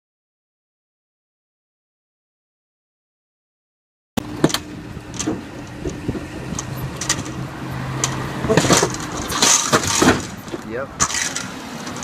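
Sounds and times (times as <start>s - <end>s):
cars driving past: 4.2s - 12.0s.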